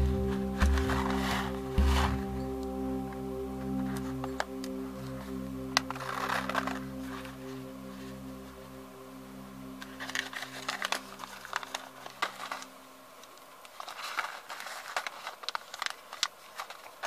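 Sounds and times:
held chord of background music: 0.0s - 13.2s
paper envelope crinkling: 5.8s - 8.2s, 9.8s - 17.0s.

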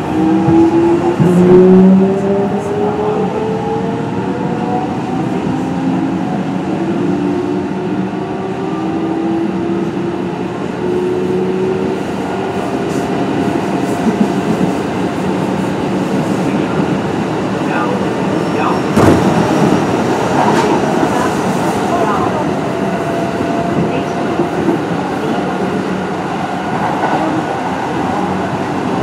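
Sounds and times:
wheel and rail rumble: 0.0s - 29.0s.

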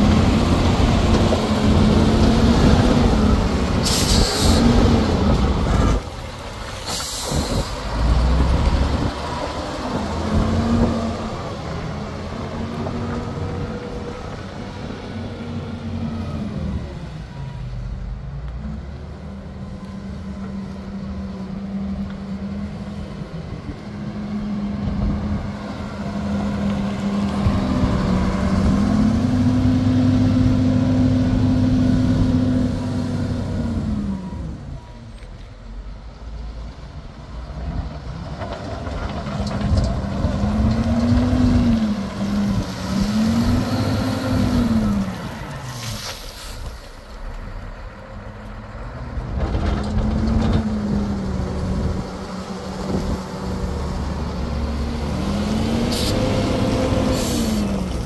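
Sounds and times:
wheel loader diesel engine: 0.0s - 58.0s
short hisses: 45.8s - 47.0s.

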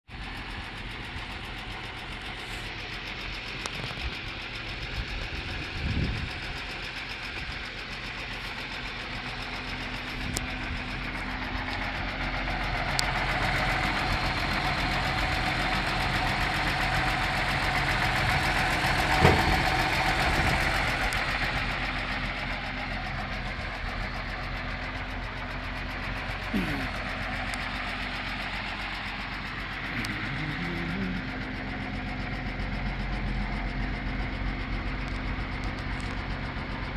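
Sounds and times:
truck engine idling: 0.1s - 36.9s
brief thump: 19.2s - 19.6s.

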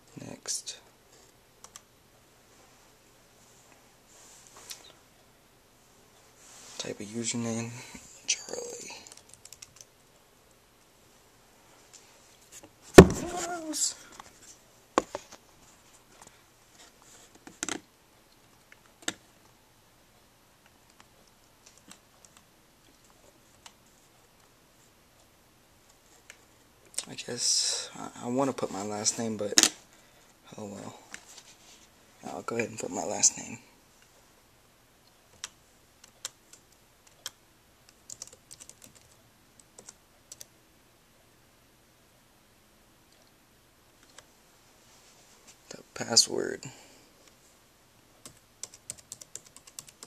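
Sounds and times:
laptop keyboard typing: 1.6s - 1.9s, 9.0s - 9.9s, 35.3s - 40.5s, 48.2s - 50.0s.

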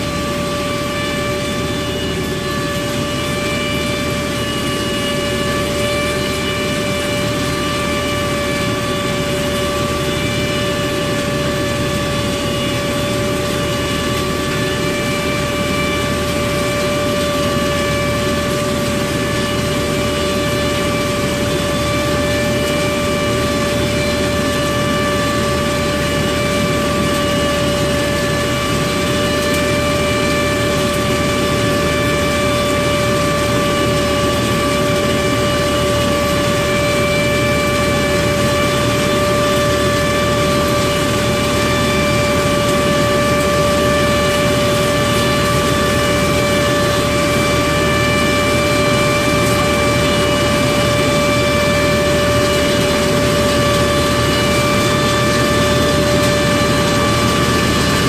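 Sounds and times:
harvesting machine engine running: 0.0s - 58.0s
steady high whine: 0.0s - 58.0s.

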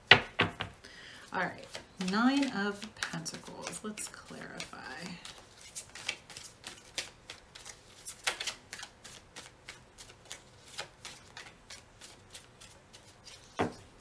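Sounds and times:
knock: 0.1s - 0.7s
cards being shuffled: 1.5s - 13.9s.

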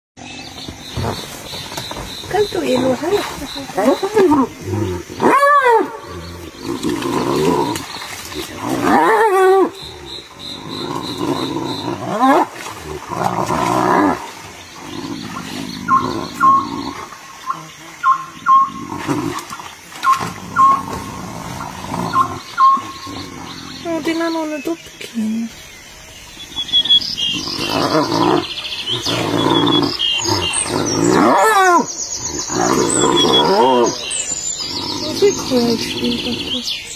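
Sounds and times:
rough low hyena growl: 0.2s - 17.8s, 18.4s - 24.3s, 27.1s - 36.9s
birds chirping faintly: 0.2s - 36.9s
hyenas calling: 14.8s - 24.6s, 26.5s - 36.8s.

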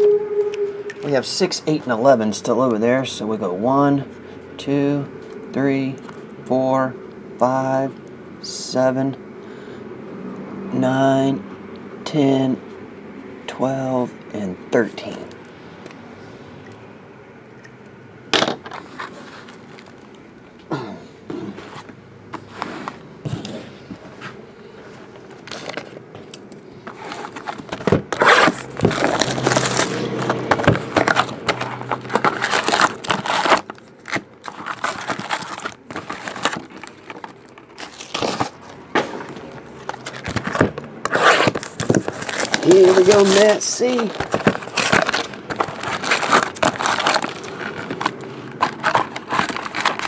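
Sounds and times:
foil packs crinkling and rustling: 18.7s - 20.1s, 26.8s - 50.0s.

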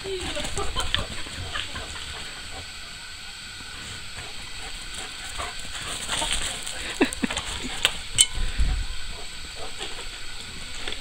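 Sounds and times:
dog scrabbling on muddy ground: 4.2s - 8.0s.

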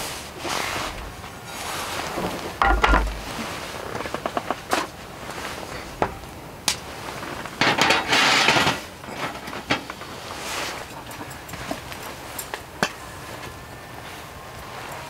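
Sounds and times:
pan and knife knocking on wood: 2.6s - 3.3s.

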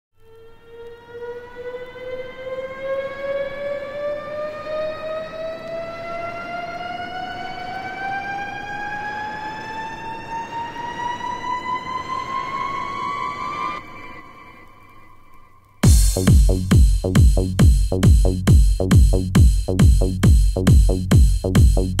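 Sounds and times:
siren-like rising tone: 0.2s - 17.7s.

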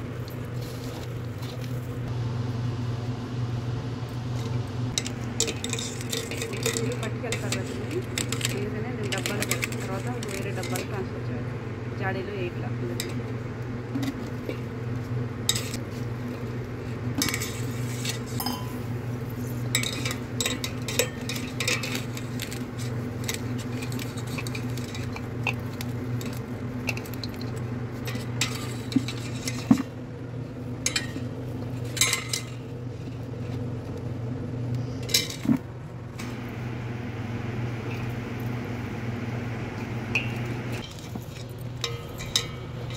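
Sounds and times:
metal strainer and bowls clinking: 5.0s - 11.0s, 17.2s - 19.0s, 19.6s - 29.8s, 30.9s - 31.2s, 31.9s - 32.6s, 40.1s - 42.9s.

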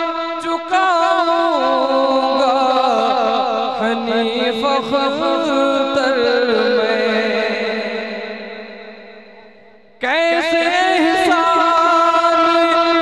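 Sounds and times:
man singing solo: 10.0s - 13.0s.

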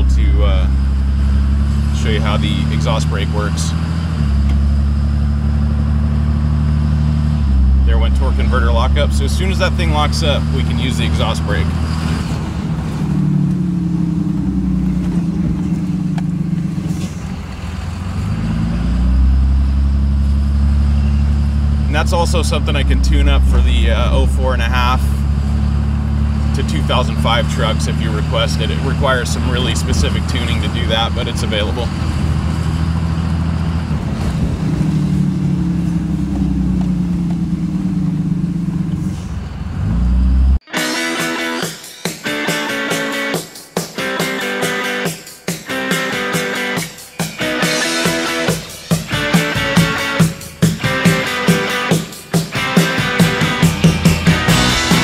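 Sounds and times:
diesel pickup engine running: 0.0s - 40.6s, 47.7s - 55.0s
engine deep drone with exhaust brake: 0.0s - 40.6s.

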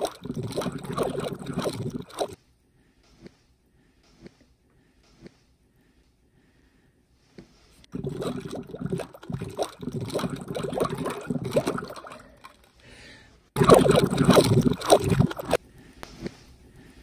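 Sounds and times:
water sloshing and gurgling: 0.0s - 2.4s, 7.9s - 12.8s, 13.6s - 15.6s.

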